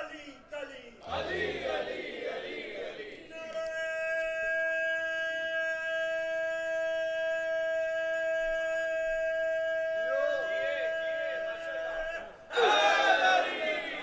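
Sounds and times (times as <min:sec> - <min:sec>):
crowd calling out: 0:10.1 - 0:14.0.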